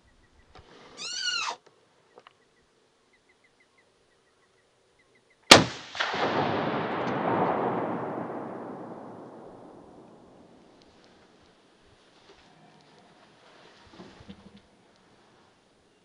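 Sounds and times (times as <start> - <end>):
rifle shot with rolling echo: 5.5 - 10.8.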